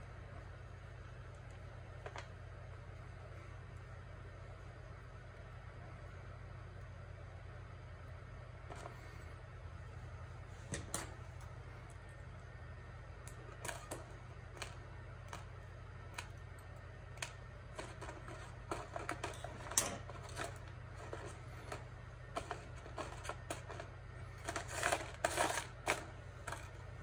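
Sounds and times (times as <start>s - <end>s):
metallic clicks of wire handling: 16.1s - 23.9s
wire cutters trimming wire: 17.2s - 26.7s.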